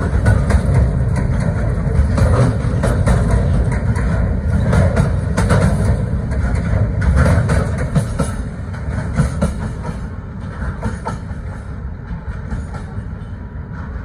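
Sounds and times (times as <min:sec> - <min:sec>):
train wheels rumbling on rails: 0:00.0 - 0:14.0
wheels clacking over rail joints: 0:00.0 - 0:14.0.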